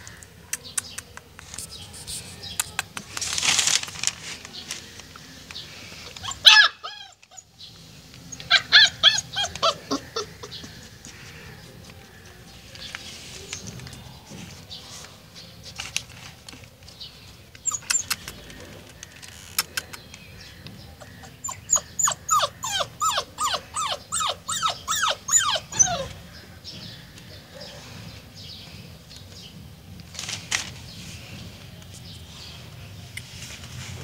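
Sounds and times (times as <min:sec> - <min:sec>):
puppy squeaks: 0:06.2 - 0:07.5, 0:08.3 - 0:10.7, 0:17.6 - 0:18.3, 0:21.0 - 0:26.2
puppy whimpering: 0:06.2 - 0:07.6, 0:08.3 - 0:11.2, 0:17.6 - 0:18.3, 0:21.0 - 0:26.3.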